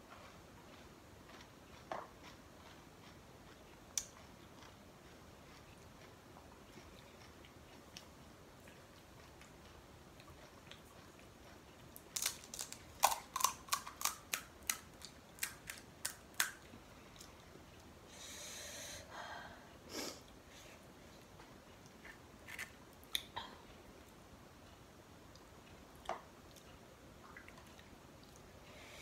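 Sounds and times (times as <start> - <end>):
crisp shells crunching: 12.1 - 14.8.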